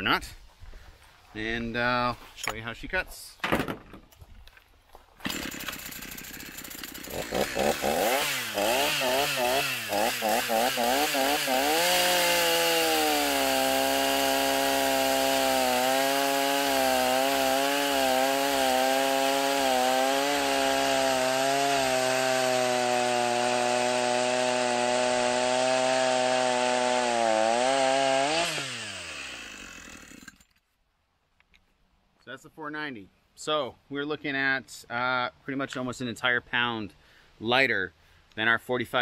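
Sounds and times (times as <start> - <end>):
chainsaw cutting log: 5.2 - 30.5.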